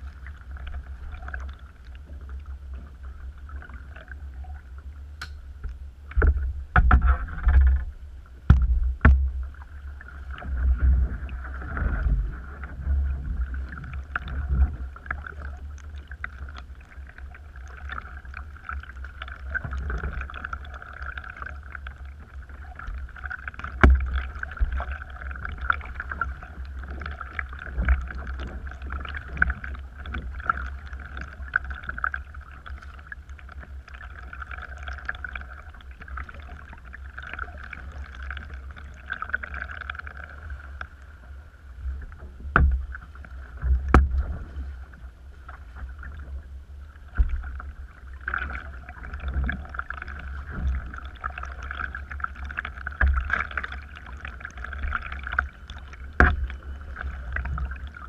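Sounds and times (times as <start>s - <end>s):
paddle blades dipping and dripping: 0.0s - 58.0s
knocks against kayak hull: 6.2s - 7.9s, 8.5s - 9.4s, 42.5s - 42.9s, 43.6s - 44.4s, 56.2s - 56.4s
steady high-pitched hum: 49.9s - 58.0s.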